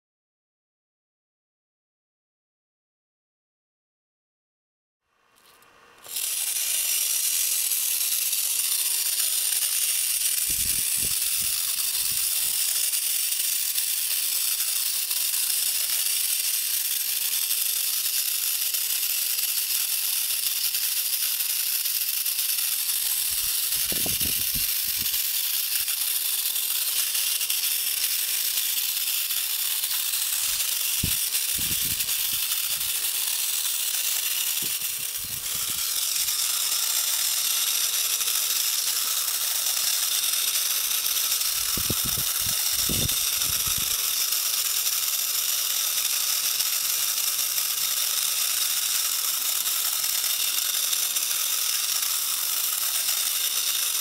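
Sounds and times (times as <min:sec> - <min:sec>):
clockwork toy gears whirring: 0:05.4 - 0:54.0.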